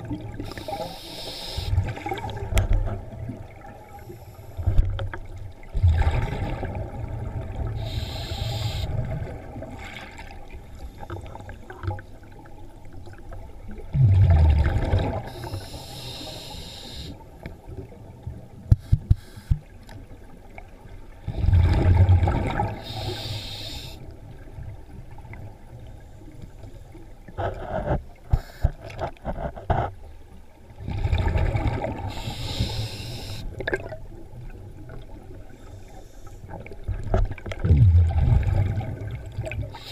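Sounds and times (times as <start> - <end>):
regulator inhalation hiss: 0.4 - 1.8, 7.8 - 9.0, 15.3 - 17.2, 22.8 - 24.0, 32.1 - 33.5
exhaled bubbles rushing: 5.7 - 7.8, 13.8 - 15.3, 21.3 - 22.8, 30.8 - 32.1, 37.4 - 39.8.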